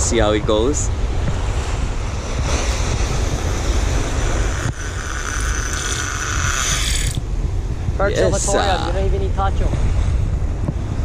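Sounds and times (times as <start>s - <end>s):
surf and wind rumbling: 0.0s - 11.0s
fishing reel line whirring: 2.2s - 7.2s
fishing reel click: 4.6s - 7.2s.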